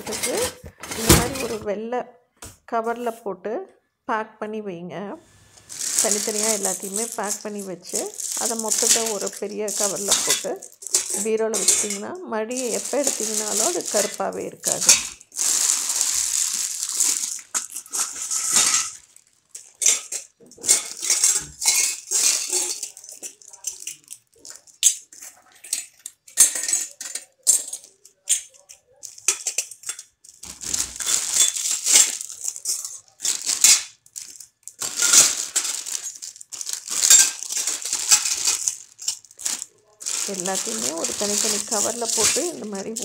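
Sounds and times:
plastic bags crinkling: 0.0 - 1.7, 5.3 - 43.0
metal clinking: 5.7 - 15.2, 16.0 - 19.0, 31.0 - 43.0.

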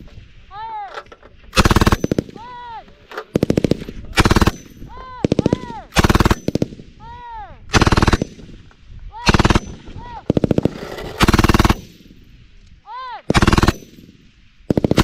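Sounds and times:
machine gun bursts: 1.5 - 2.3, 3.3 - 6.6, 7.7 - 8.3, 9.2 - 11.9, 13.3 - 13.9.

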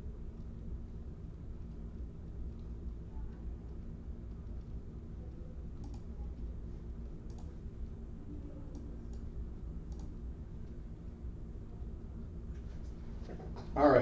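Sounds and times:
steady low hum: 0.0 - 14.0
faint clicks: 5.8 - 6.1, 7.2 - 7.5, 9.9 - 10.8.

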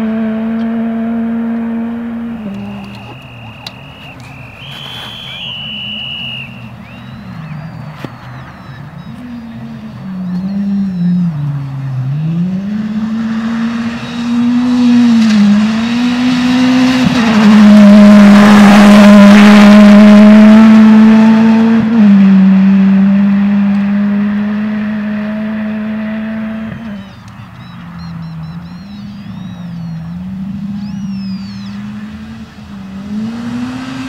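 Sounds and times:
rally car engine revving: 0.0 - 34.0
tyres on gravel: 2.3 - 10.6.

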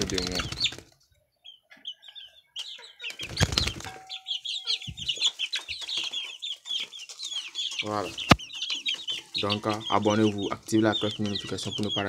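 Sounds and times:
wing flapping: 0.0 - 1.0, 3.1 - 4.0
chickens and chicks calling: 0.0 - 12.0.

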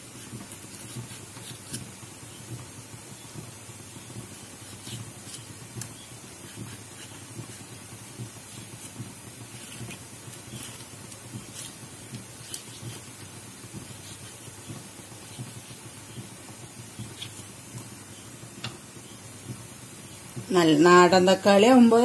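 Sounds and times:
knife slicing tomato: 0.0 - 2.4, 4.2 - 18.2
steady background hiss: 0.0 - 22.0.

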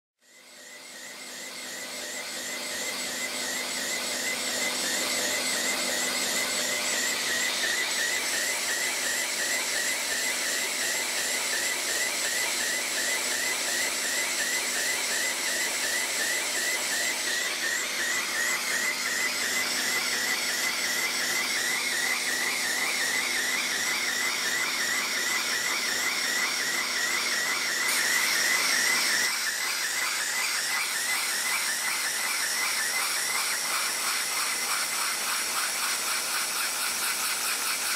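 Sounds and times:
small steam engine running: 0.2 - 37.9
steam hissing: 27.9 - 28.6.

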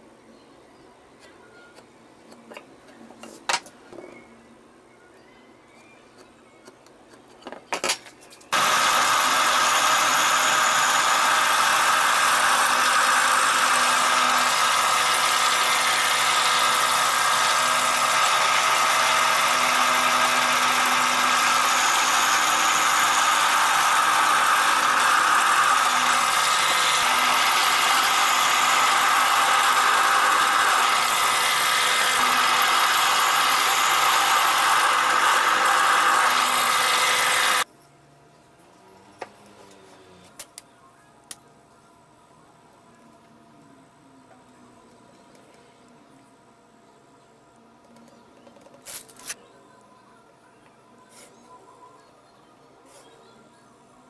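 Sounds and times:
drill press boring into wood: 8.5 - 37.6.

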